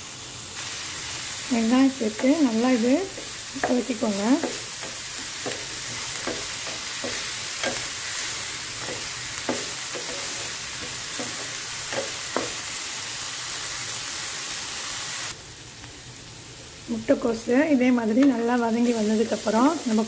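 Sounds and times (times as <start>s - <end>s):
vegetables sizzling in oil: 0.0s - 20.0s
wooden spatula scraping a pan: 2.1s - 12.6s.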